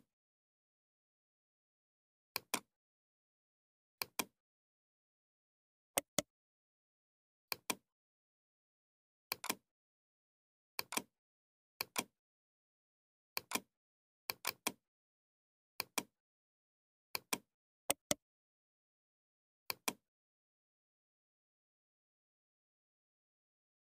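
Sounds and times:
computer mouse clicking: 9.3s - 9.6s, 10.8s - 11.1s, 11.8s - 12.1s, 13.4s - 13.6s, 14.3s - 14.8s, 15.8s - 16.1s, 19.7s - 20.0s.

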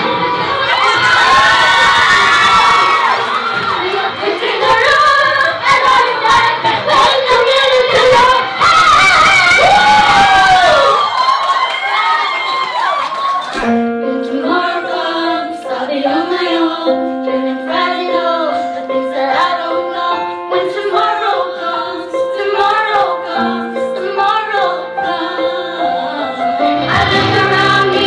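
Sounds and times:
backing music: 2.9s - 8.6s, 13.6s - 28.0s
women singing together: 3.0s - 9.4s, 14.0s - 28.0s.

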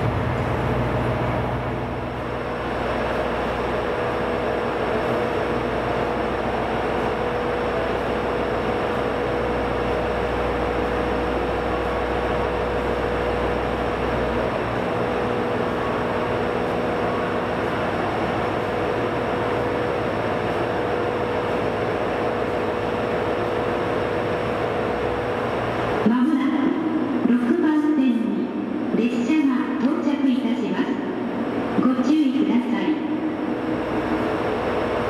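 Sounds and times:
deep rumble: 0.0s - 2.6s
train running noise: 0.0s - 35.0s.

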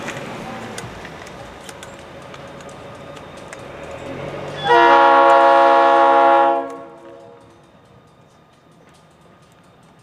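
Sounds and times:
diesel locomotive engine: 0.0s - 10.0s
locomotive air horn blast: 4.6s - 7.4s.

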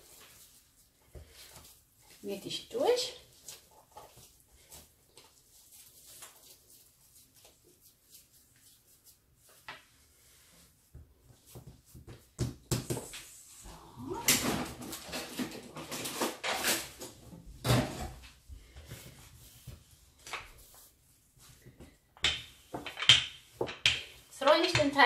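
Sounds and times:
hands patting dough: 3.3s - 14.2s
rolling pin rolling over dough: 18.5s - 25.0s.

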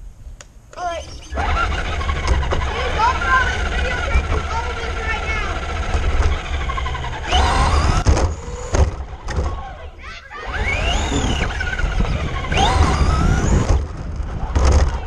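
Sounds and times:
rc car motor whining: 0.8s - 9.6s, 10.3s - 15.0s
sharp knocks from bumps: 5.8s - 9.6s
wind rumble on microphone: 10.6s - 15.0s.

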